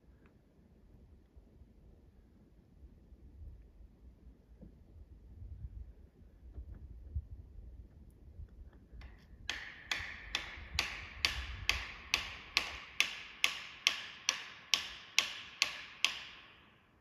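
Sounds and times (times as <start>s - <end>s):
hammer blows on wedges: 9.0s - 16.6s.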